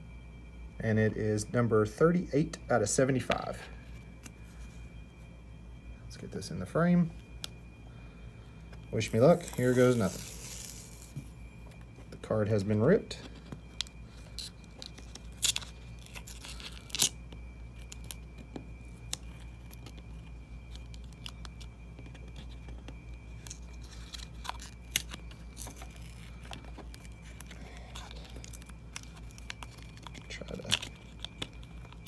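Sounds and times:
steady low hum: 0.0s - 32.0s
paper tearing and crinkling: 9.1s - 11.1s, 14.4s - 17.2s, 23.4s - 32.0s.

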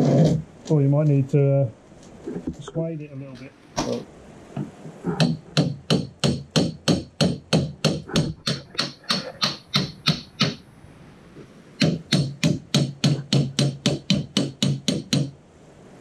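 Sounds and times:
hammer striking metal shaft: 5.2s - 10.6s, 11.8s - 15.3s.

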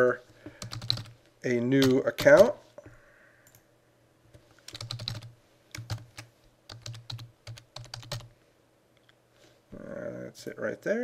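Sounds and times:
computer keyboard typing: 0.6s - 1.2s, 1.8s - 2.5s, 4.7s - 8.3s.

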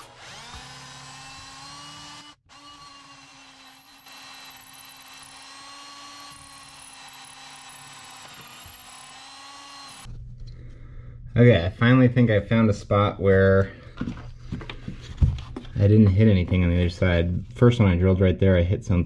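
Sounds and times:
cordless drill boring through wood: 0.0s - 10.1s.

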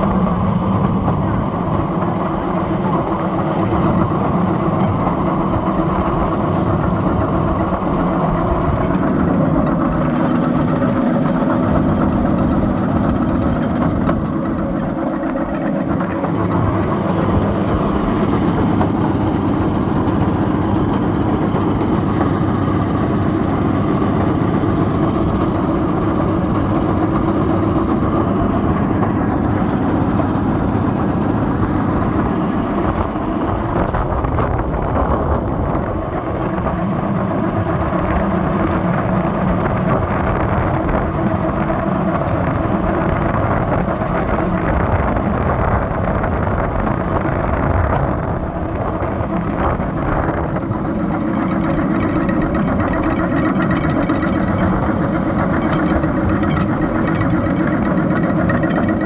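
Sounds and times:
railcart small engine running: 0.0s - 59.0s.

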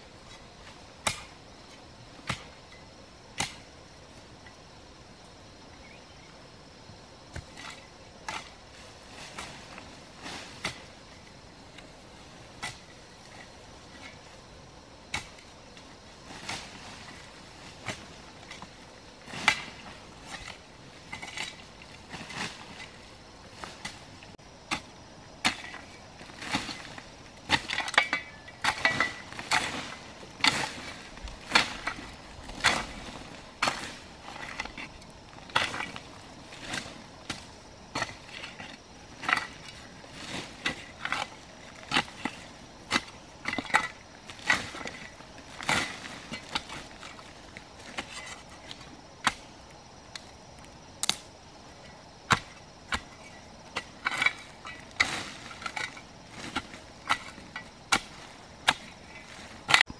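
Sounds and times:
hoe scraping soil: 24.7s - 49.4s, 52.3s - 59.9s
hoe chopping into earth: 52.3s - 53.2s.

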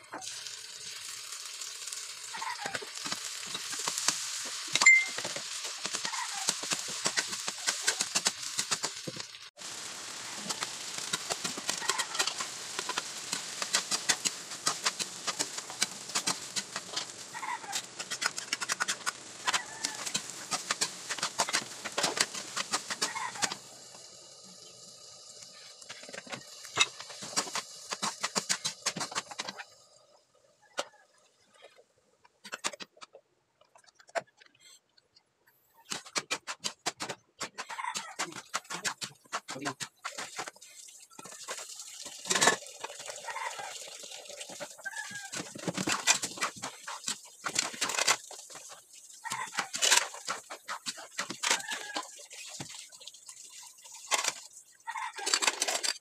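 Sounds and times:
food sizzling: 0.0s - 31.7s, 35.7s - 56.0s
ladle scraping in a wok: 10.3s - 23.6s
chickens clucking: 17.3s - 18.9s, 22.7s - 23.6s, 37.5s - 39.0s.

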